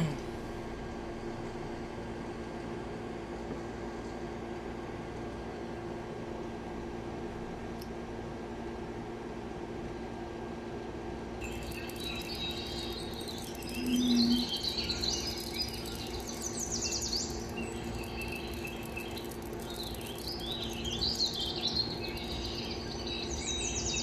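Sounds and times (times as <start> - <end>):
steady low hum: 0.0 - 24.0
birds chirping and twittering: 11.4 - 24.0
short low tone: 13.7 - 14.5.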